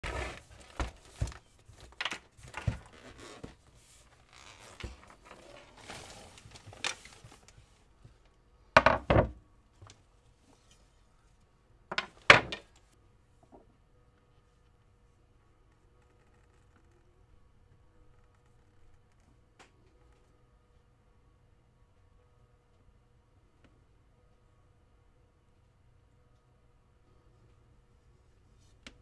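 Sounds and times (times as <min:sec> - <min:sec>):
case handling knocks and scrapes: 0:00.0 - 0:03.7
cue clunking on wooden workbench: 0:08.8 - 0:09.4.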